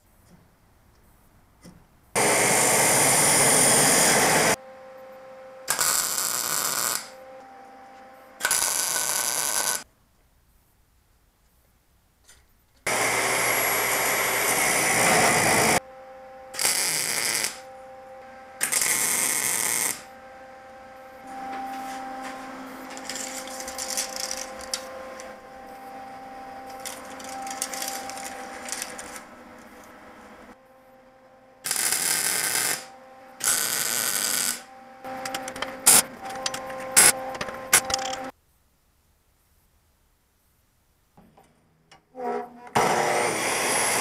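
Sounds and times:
welder crackling: 2.2 - 4.6, 5.6 - 7.2, 8.4 - 9.9, 12.8 - 15.8, 16.5 - 30.6, 31.6 - 38.3, 42.2 - 44.0
steady tone: 12.9 - 38.3.

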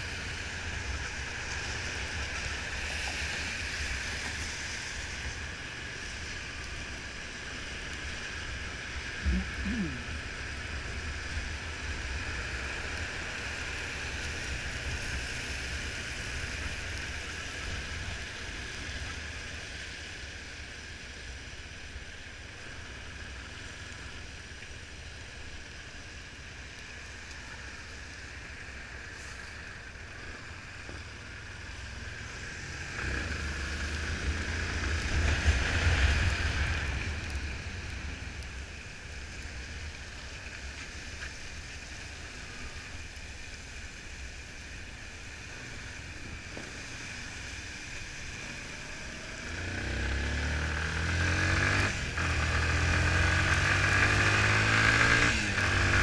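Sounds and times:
tyre noise on wet road: 0.0 - 56.0
motorcycle engine: 48.3 - 56.0.

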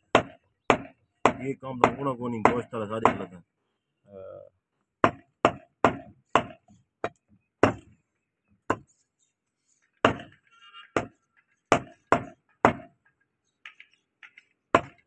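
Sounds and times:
cleaver chopping meat on wood: 0.1 - 3.3, 5.0 - 7.9, 8.7 - 8.9, 10.0 - 10.4, 11.0 - 12.9, 14.8 - 15.0.

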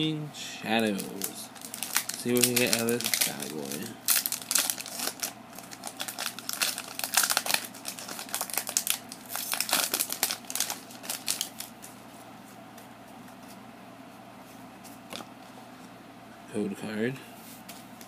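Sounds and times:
foil wrapper crinkling: 0.8 - 12.0.

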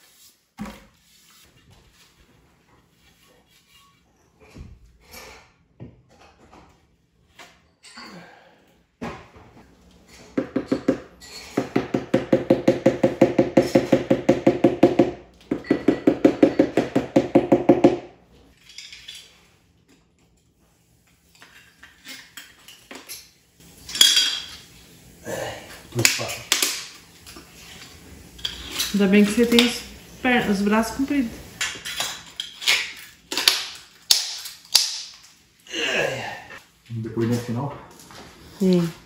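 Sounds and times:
metal tools being handled: 18.5 - 19.5.

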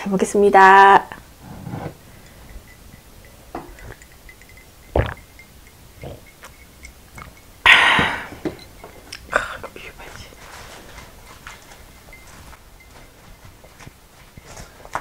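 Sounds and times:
glass jar clinks: 2.1 - 9.6
liquid sounds of drinking: 4.9 - 8.4.

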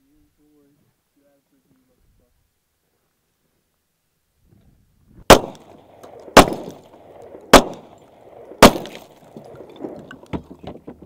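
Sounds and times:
gunshots with echo: 5.3 - 6.9, 7.5 - 9.2.

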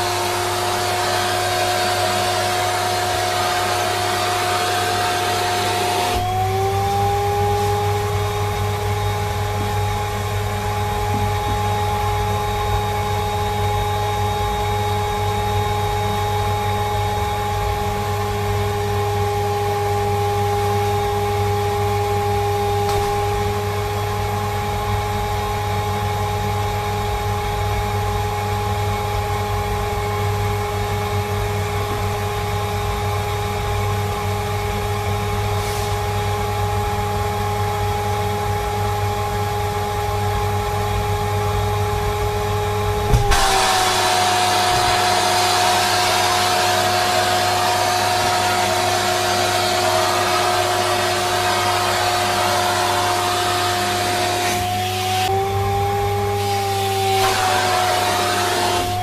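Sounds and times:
vacuum nozzle sucking: 0.0 - 8.8, 35.5 - 36.3, 43.1 - 55.5, 56.2 - 59.0
vacuum cleaner running: 0.0 - 59.0.

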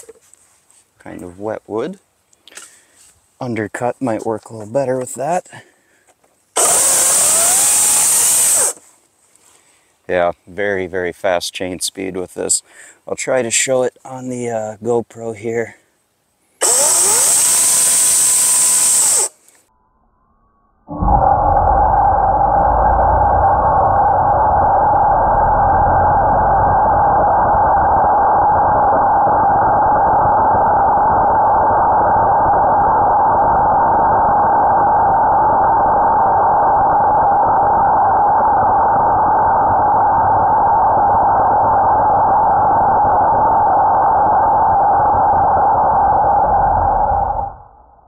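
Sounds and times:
electric chainsaw whining: 6.6 - 8.8, 16.6 - 19.4.

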